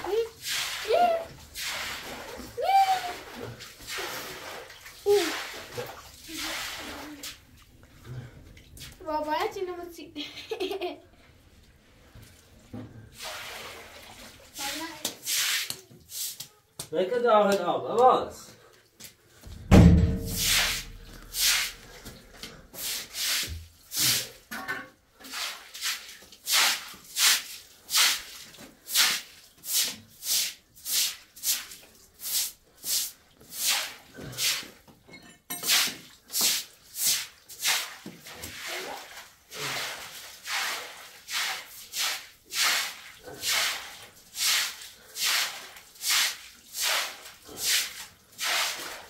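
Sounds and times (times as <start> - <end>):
heavy thump: 19.6 - 20.6.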